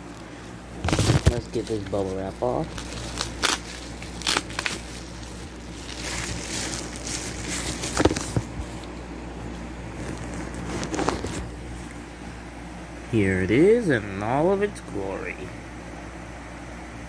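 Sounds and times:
bubble wrap rustling and crackling: 0.0s - 11.8s.

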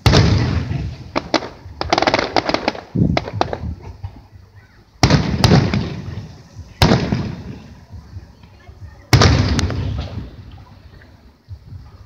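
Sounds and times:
firework shells bursting: 0.0s - 3.8s, 5.0s - 7.8s.

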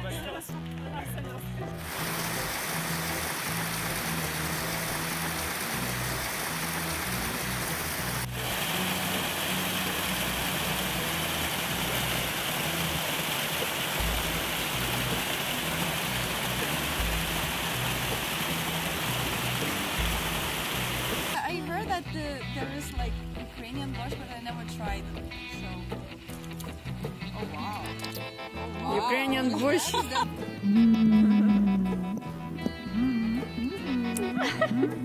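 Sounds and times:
faint background music: 0.0s - 35.0s
waterfall rushing over rocks: 1.8s - 21.4s.

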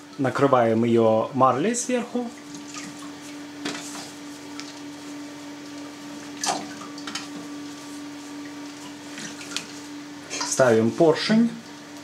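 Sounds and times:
wet cloth swishing and rustling: 2.4s - 10.0s.

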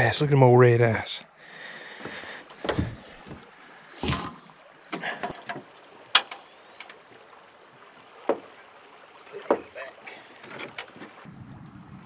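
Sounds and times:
faint wind and water: 0.0s - 12.0s
knocks and thumps in metal boat: 9.4s - 9.9s.

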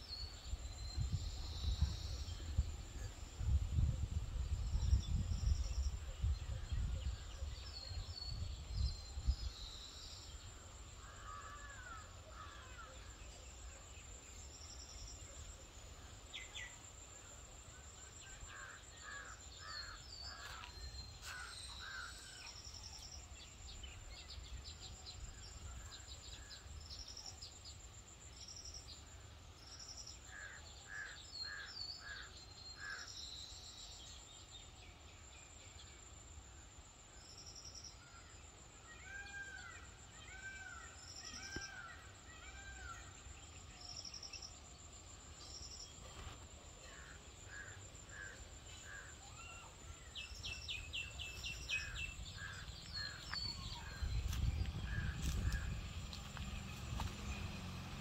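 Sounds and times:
high insect drone: 9.9s - 13.2s
small birds chirping: 48.9s - 58.0s
low rumble on microphone: 51.8s - 58.0s.

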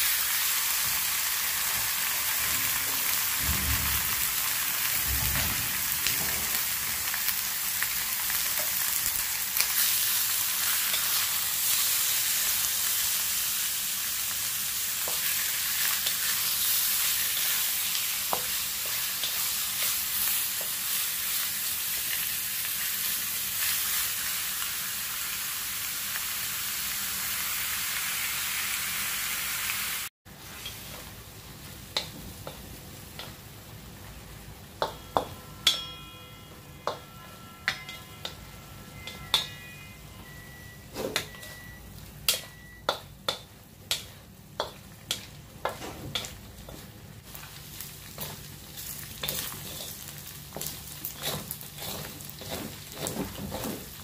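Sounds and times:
meat sizzling in wok: 0.0s - 35.0s, 38.4s - 54.0s
wooden spatula scraping wok: 45.7s - 54.0s.

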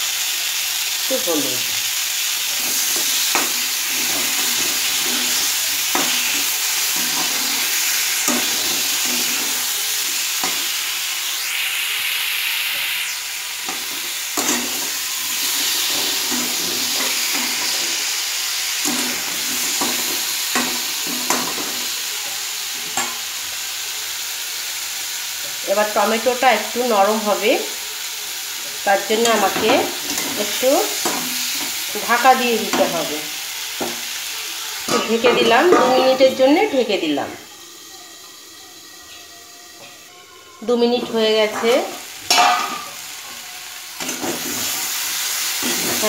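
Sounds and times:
tomatoes sizzling in hot oil: 0.0s - 46.0s
metal spatula scraping pan: 2.5s - 10.8s, 13.6s - 21.8s, 34.9s - 37.1s.

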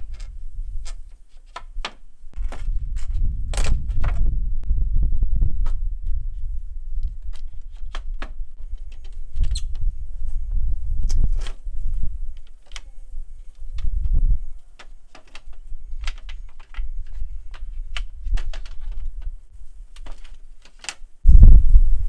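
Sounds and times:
steady low rumble: 2.2s - 14.6s, 21.2s - 22.0s.

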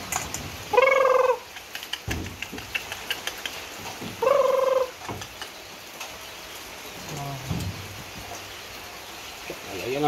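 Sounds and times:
pitched animal call: 0.7s - 1.8s, 4.2s - 5.3s.

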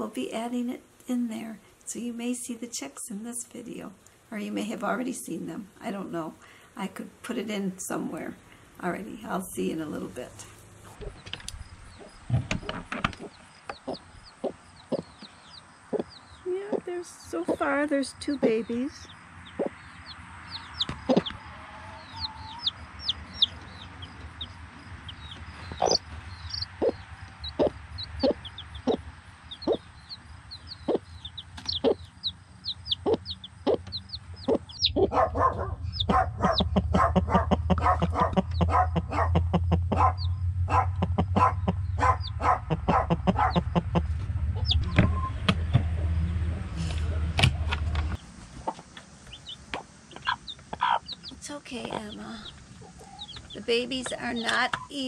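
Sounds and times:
hen clucking: 10.8s - 46.1s, 46.8s - 55.0s
chicks peeping: 10.8s - 55.0s
low rumble: 22.6s - 49.6s.

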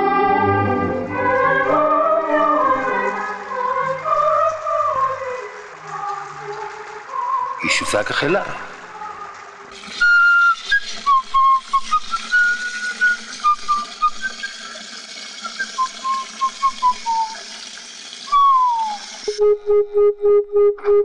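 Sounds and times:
film soundtrack hiss: 0.0s - 20.5s
man whistling a tune: 9.9s - 14.8s, 15.4s - 17.4s, 18.3s - 21.0s.

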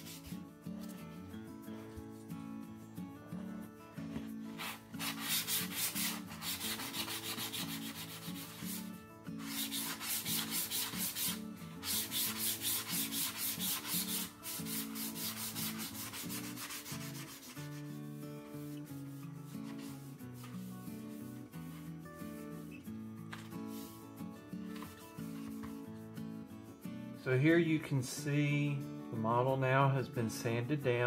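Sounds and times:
wet sandpaper rubbing: 0.0s - 0.4s, 4.5s - 22.0s, 23.4s - 24.1s.

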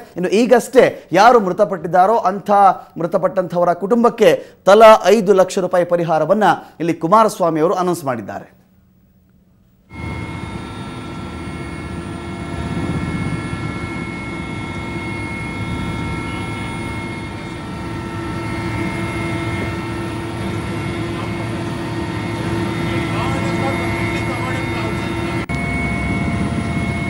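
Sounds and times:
steady whining tones: 8.7s - 27.0s
helicopter engine and rotors droning: 9.9s - 27.0s.

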